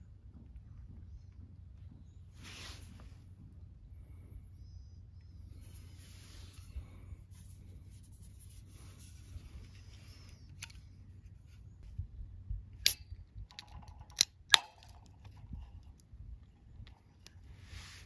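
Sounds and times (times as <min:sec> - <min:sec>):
beer can clicks: 0:12.8 - 0:15.3
can pull-tab cracking open: 0:12.8 - 0:15.4.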